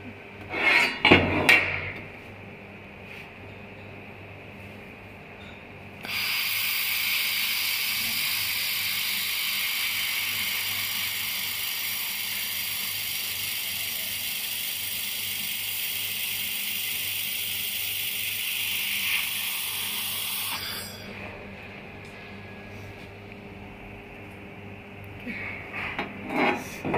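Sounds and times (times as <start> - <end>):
laser welder hissing: 6.0 - 21.1.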